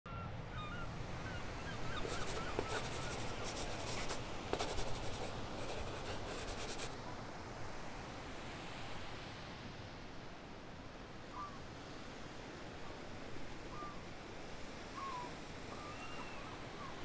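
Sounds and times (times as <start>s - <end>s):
scratchy rustling: 2.0s - 7.0s
faint bird chirps: 15.0s - 17.0s.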